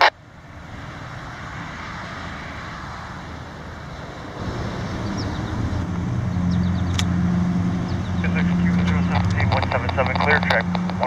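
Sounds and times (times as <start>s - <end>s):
diesel locomotives droning: 0.0s - 11.0s
train rumbling: 3.5s - 11.0s.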